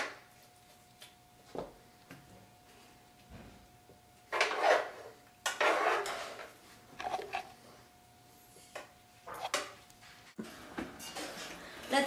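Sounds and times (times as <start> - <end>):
utensil scraping frying pan: 4.3 - 7.6.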